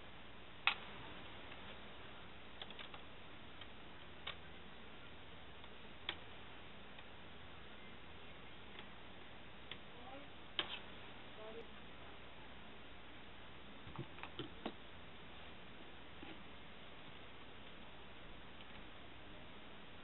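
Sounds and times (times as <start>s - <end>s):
faint steady hiss: 0.0s - 20.0s.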